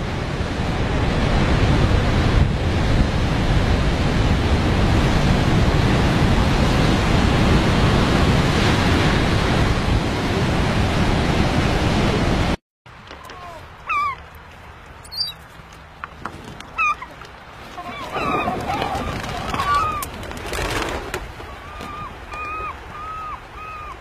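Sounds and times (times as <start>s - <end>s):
surf crashing over rocks: 16.1s - 23.4s.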